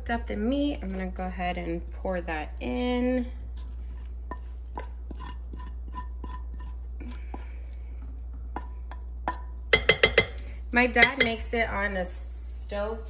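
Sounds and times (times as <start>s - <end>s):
steady low hum: 0.0s - 13.0s
wooden spoon scraping a pan: 0.7s - 8.7s
spoon knocking on pan: 8.5s - 10.4s, 11.0s - 11.4s.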